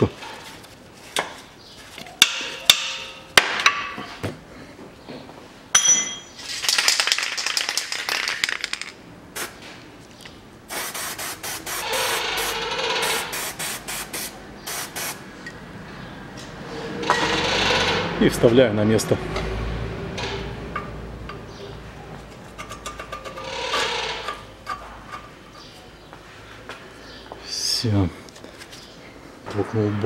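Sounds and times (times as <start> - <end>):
metallic tool clinks: 5.8 - 6.3.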